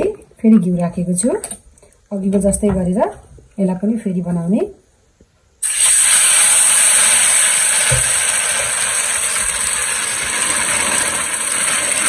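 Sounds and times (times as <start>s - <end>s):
batter sizzling in hot oil: 5.6s - 12.0s.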